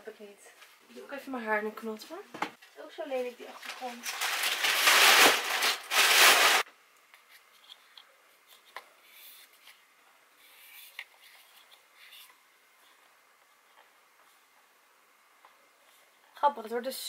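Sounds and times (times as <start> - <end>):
packing paper rustling in a box: 3.4 - 6.7.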